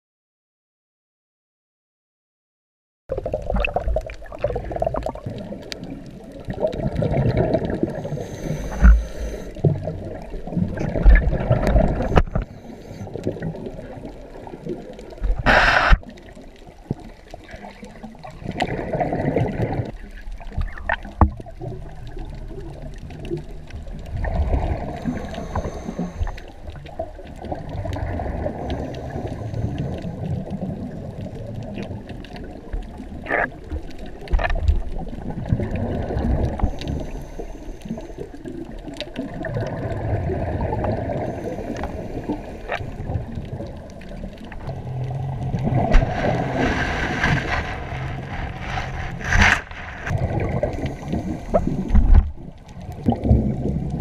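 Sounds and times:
bubbles underwater: 3.1s - 8.2s, 8.8s - 37.2s, 38.0s - 54.0s
underwater rumble and gurgling: 3.1s - 54.0s.

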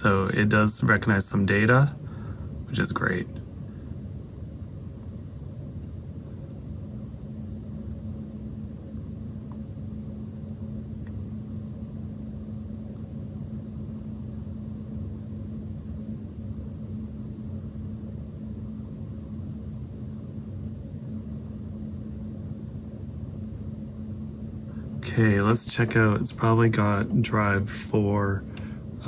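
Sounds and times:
low hum and rumble: 0.0s - 29.0s.

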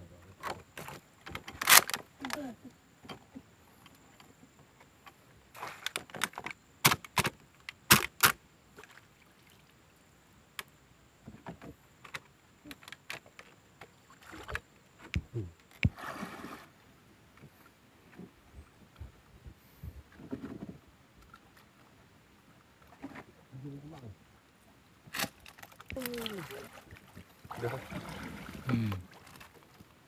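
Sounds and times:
splashing of wading: 13.9s - 16.8s, 25.0s - 30.0s.

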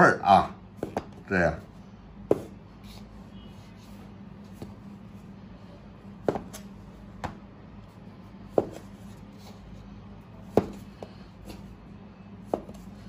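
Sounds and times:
cleaver knocking on cutting board: 2.3s - 2.5s, 10.5s - 10.8s.

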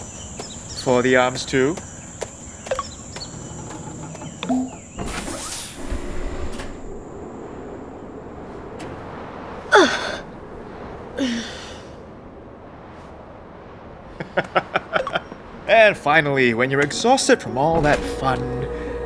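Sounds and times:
whooshing rush: 5.0s - 19.0s.

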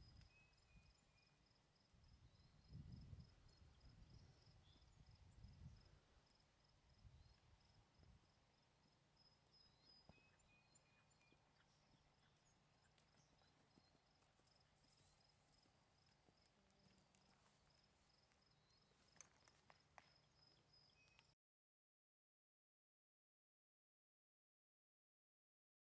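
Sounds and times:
faint hoofbeats on sand: 2.6s - 21.3s.

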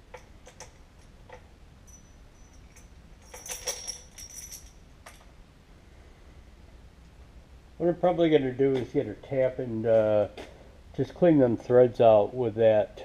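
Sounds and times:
small metal parts clinking: 0.1s - 5.3s.

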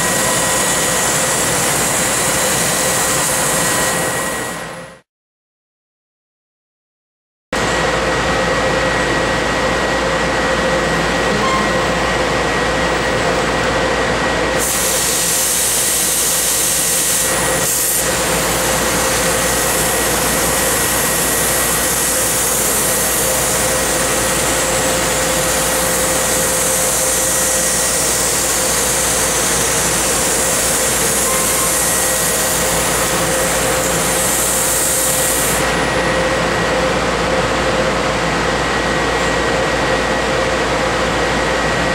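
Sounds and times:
laser cutting machine humming: 0.0s - 4.8s, 7.7s - 41.8s
loud high hiss of cutting: 14.6s - 35.8s.

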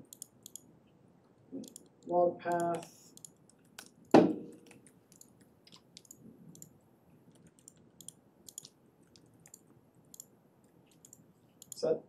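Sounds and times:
loud thump: 4.2s - 4.5s
keyboard key clicks: 7.3s - 10.3s.

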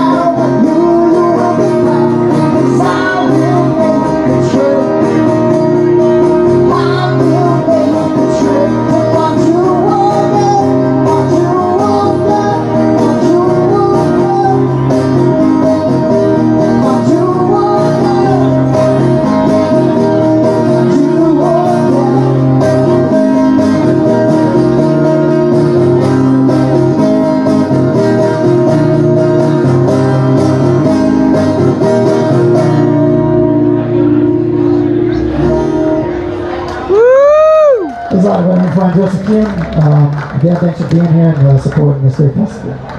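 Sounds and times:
man singing: 0.0s - 15.6s, 16.6s - 19.8s, 20.5s - 23.9s
acoustic guitar strumming: 0.0s - 36.9s.

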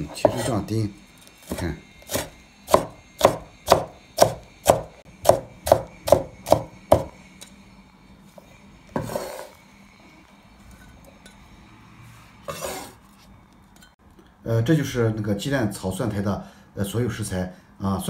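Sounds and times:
cleaver chopping on wooden board: 1.5s - 7.1s.

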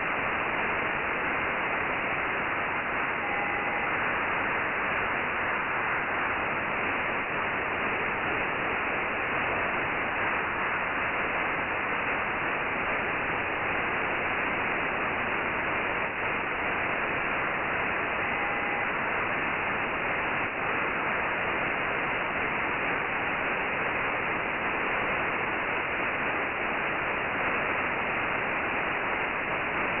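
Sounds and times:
radio static hiss: 0.0s - 30.0s
faint whistle: 3.2s - 3.8s.

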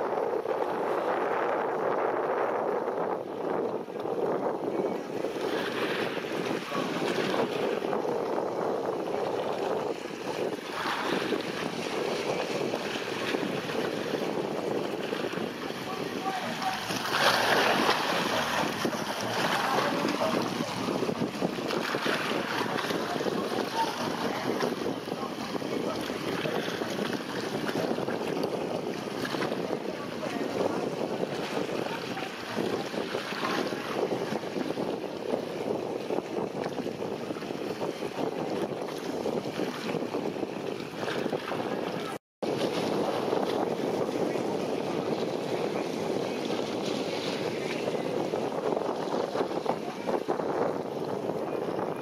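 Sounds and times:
choppy seawater: 0.0s - 52.0s
wind buffeting microphone: 0.0s - 52.0s.

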